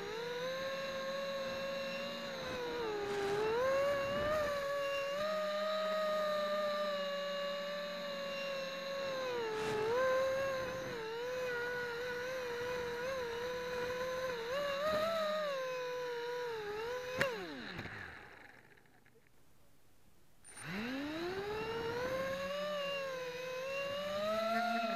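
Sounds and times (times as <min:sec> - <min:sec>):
drone motors whining: 0:00.0 - 0:19.2, 0:20.4 - 0:24.9.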